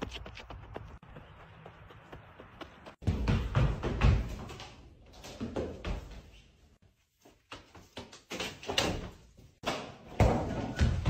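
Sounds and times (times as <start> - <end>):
footsteps running on wooden floor: 0.0 - 6.2.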